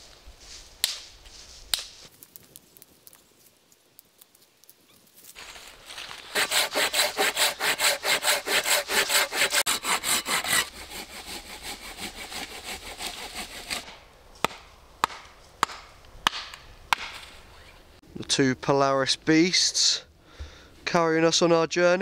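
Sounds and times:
sticks snapping: 1.7s - 6.2s
hand saw cutting stick: 6.1s - 15.2s.

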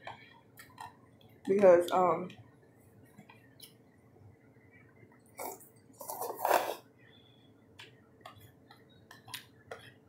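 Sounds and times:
slurping noodles: 5.4s - 6.9s.

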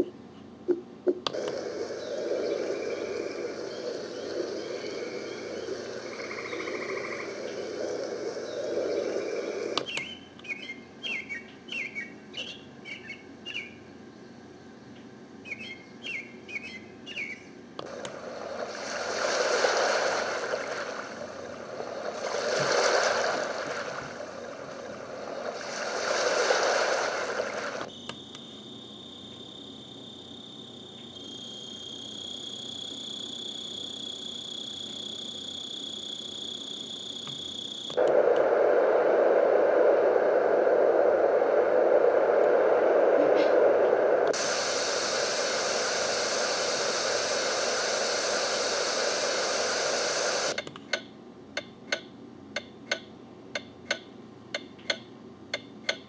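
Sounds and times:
high insect drone: 1.4s - 9.8s, 26.3s - 43.1s, 44.0s - 50.6s
wind rushing noise: 1.4s - 9.8s, 38.0s - 50.6s
bird chirps: 9.8s - 13.9s, 15.4s - 17.6s
ocean waves: 17.9s - 27.9s.

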